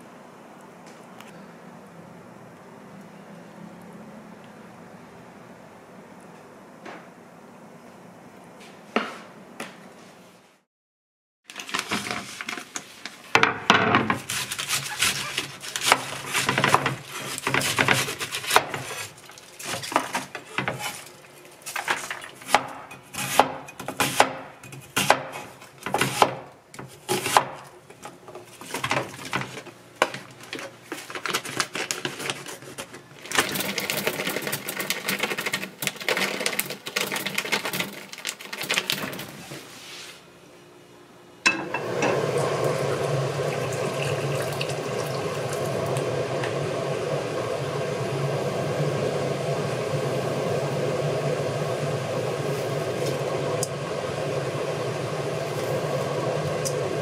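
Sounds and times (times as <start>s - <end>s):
plastic package rustling: 11.5s - 13.2s, 28.6s - 39.4s
knife chopping on wooden board: 22.5s - 26.4s.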